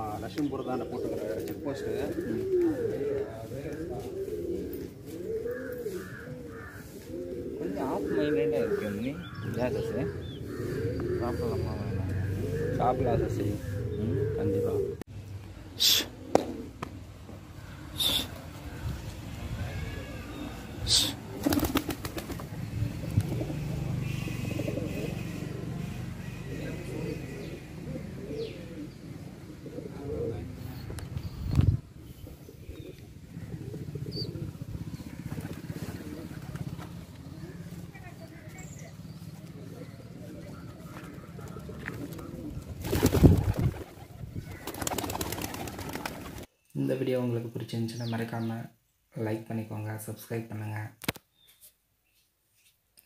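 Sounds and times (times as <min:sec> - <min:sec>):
pigeons cooing: 0:00.0 - 0:15.1, 0:15.7 - 0:46.5
pigeon wings flapping: 0:21.4 - 0:23.4, 0:35.2 - 0:37.1, 0:41.0 - 0:46.5.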